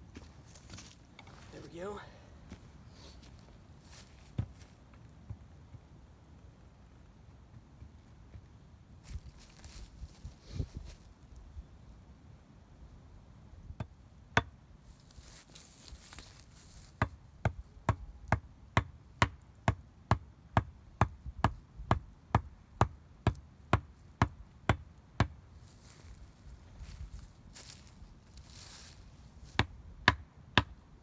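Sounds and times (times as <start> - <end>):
hatchet chopping wood: 13.8 - 14.6, 29.6 - 30.7.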